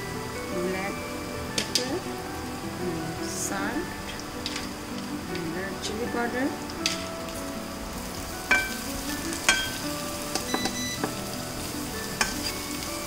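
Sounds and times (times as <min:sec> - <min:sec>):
onions sizzling in oil: 0:00.0 - 0:13.0
metal spatula clinking against pan: 0:09.5 - 0:11.2, 0:12.2 - 0:12.6.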